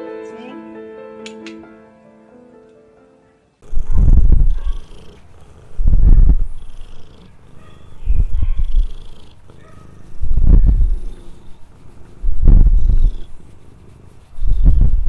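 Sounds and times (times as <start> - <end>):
cat purring loudly: 3.6 - 15.0.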